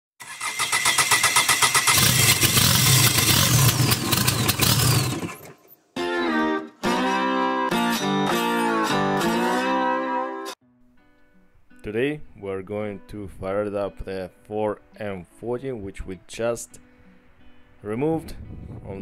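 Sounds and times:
diesel engine cranking and running: 0.2 - 5.8
acoustic guitar music: 6.0 - 18.7.

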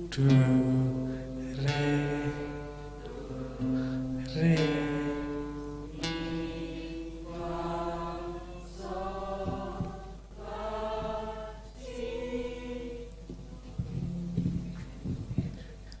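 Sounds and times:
group singing held notes: 0.0 - 16.0.

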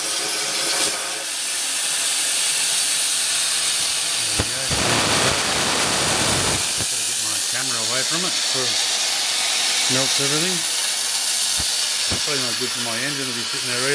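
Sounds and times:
plasma cutter arc hissing: 0.2 - 13.9.

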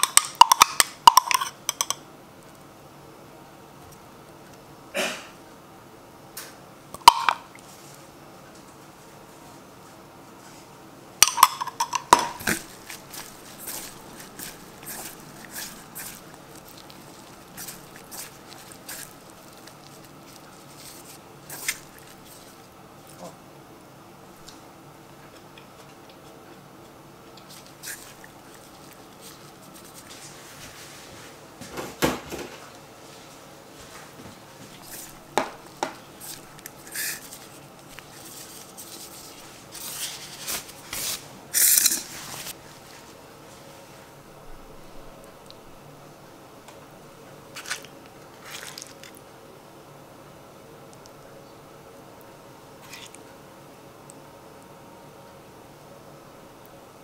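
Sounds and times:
wet leaves rustling in bowl: 11.4 - 23.4, 27.4 - 31.4, 33.0 - 44.1, 47.5 - 49.3
wet leaves and glove rustling: 12.4 - 22.6, 47.6 - 49.2.

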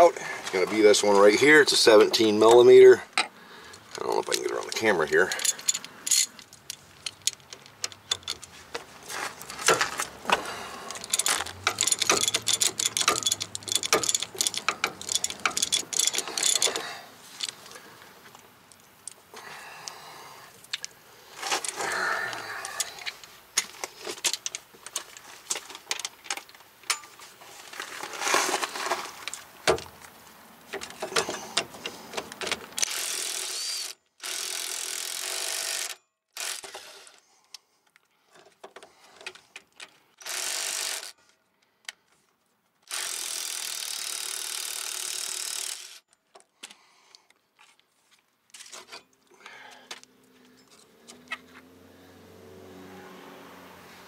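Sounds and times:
impact wrench running: 9.7 - 17.0, 32.8 - 37.0, 40.2 - 41.2, 42.9 - 46.0
metal tool clinks: 11.0 - 16.8
ratchet clicking: 11.0 - 17.6, 32.8 - 37.0, 40.2 - 41.2, 42.8 - 46.1.

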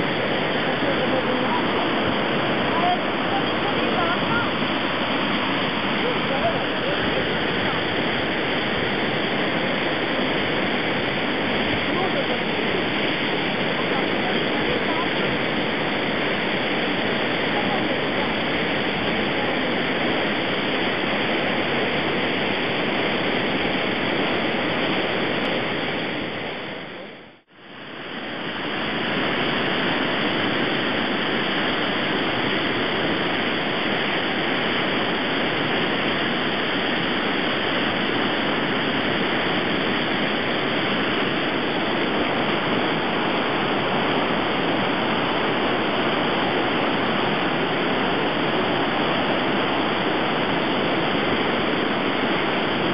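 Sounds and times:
roar of turbulent white water: 0.0 - 52.9.

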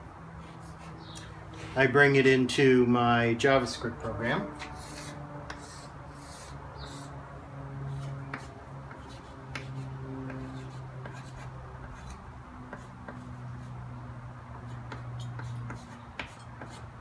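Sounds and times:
steady low hum: 0.0 - 17.0
chalk tapping and scratching: 4.6 - 7.1, 7.9 - 13.8, 14.6 - 17.0.

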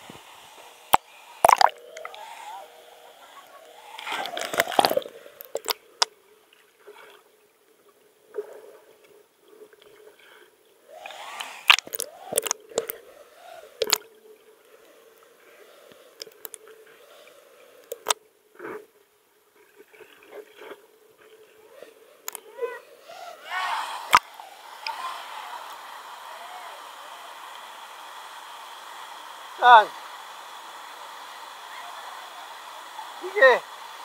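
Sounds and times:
sharp splashes: 0.9 - 2.3, 24.0 - 25.6
water sloshing: 1.4 - 2.1.

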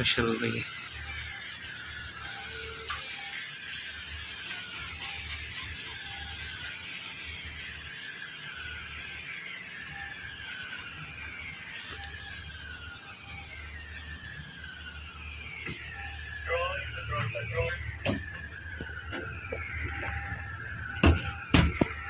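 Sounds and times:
heavy rain hissing: 0.0 - 22.0
faint falling tones: 10.1 - 22.0.

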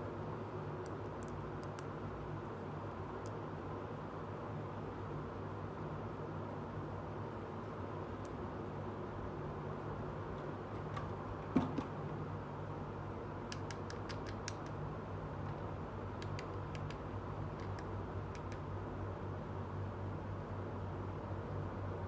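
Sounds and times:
steady low hum: 0.0 - 22.0
thump: 11.5 - 11.9.

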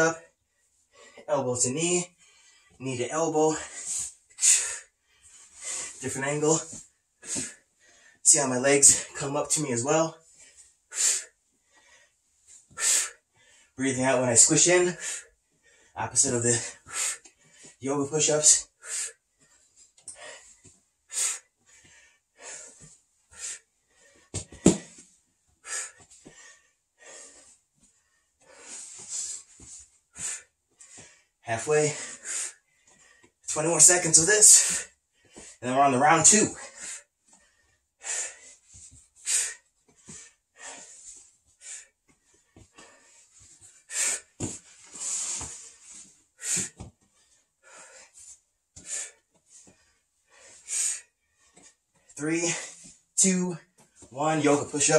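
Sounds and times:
body thumping on foam mats: 24.3 - 25.1.

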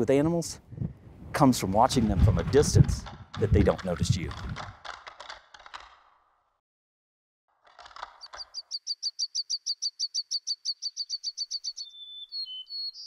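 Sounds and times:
songbird trilling: 8.2 - 13.0
thin whistled bird notes: 8.2 - 13.0.

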